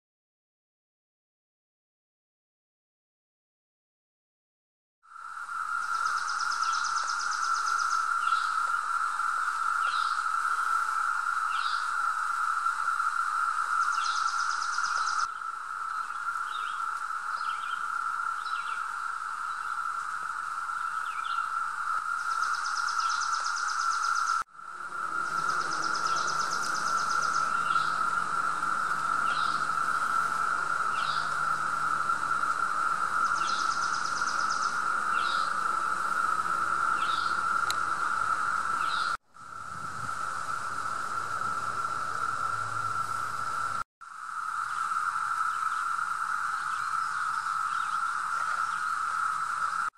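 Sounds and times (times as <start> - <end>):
cicadas droning: 5.0 - 49.9
birds chirping: 13.7 - 19.9, 20.7 - 39.2.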